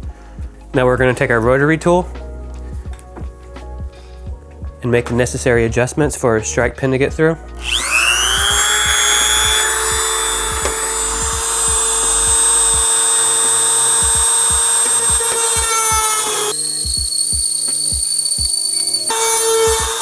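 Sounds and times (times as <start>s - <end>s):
background music with beat: 0.0s - 20.0s
rotary tool high-pitched whine: 7.6s - 20.0s.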